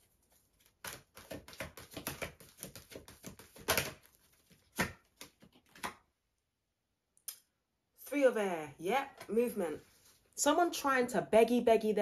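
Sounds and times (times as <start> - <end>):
cards being shuffled: 0.2 - 6.0.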